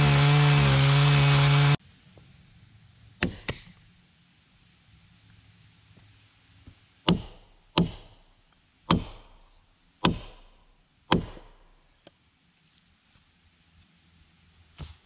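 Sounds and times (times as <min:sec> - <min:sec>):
heavy hammer blows ringing: 0:07.1 - 0:08.2, 0:08.9 - 0:10.4.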